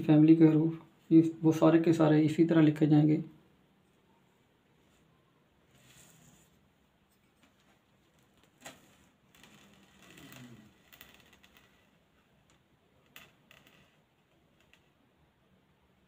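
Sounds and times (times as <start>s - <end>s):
soft rustle: 3.8s - 12.6s.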